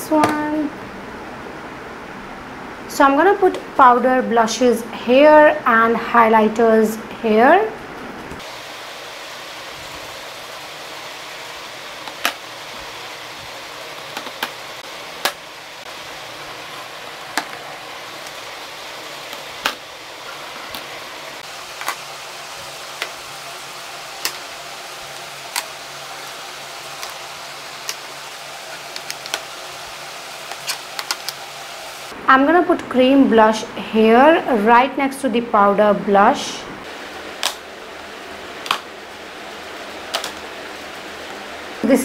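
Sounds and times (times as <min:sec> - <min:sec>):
steady hiss: 0:08.2 - 0:32.2, 0:36.4 - 0:42.0.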